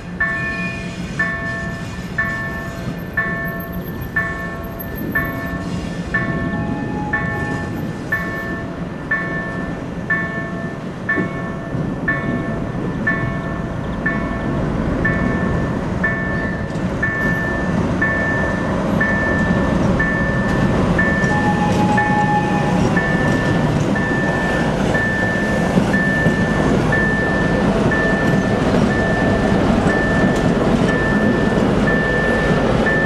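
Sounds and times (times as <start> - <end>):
diesel locomotive engine running: 0.0 - 33.0
level crossing warning beeps: 0.2 - 33.0.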